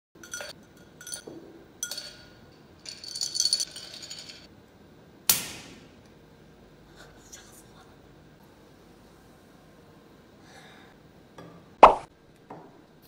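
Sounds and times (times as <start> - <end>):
glass cup clinking: 0.2 - 4.5
glass cup rattling: 0.2 - 4.5.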